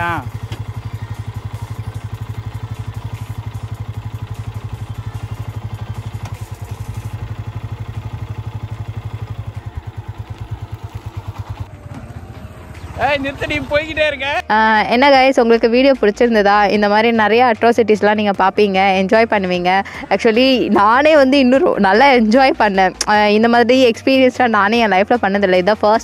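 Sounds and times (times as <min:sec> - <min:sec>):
motorcycle engine idling: 0:00.0 - 0:17.5.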